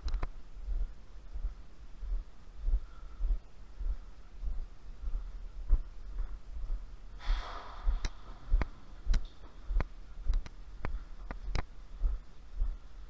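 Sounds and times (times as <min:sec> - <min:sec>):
sharp clicks: 0:00.0 - 0:00.3, 0:08.0 - 0:11.7
low regular thuds: 0:00.0 - 0:13.0
breath out close to microphone: 0:07.2 - 0:08.0.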